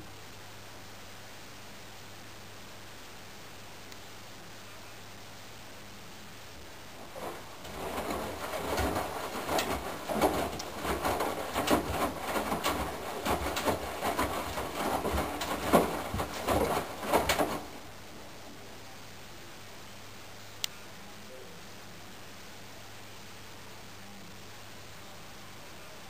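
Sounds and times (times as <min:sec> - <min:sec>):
faint steady hiss: 0:00.0 - 0:26.0
washing machine drum tumbling laundry: 0:06.9 - 0:18.1.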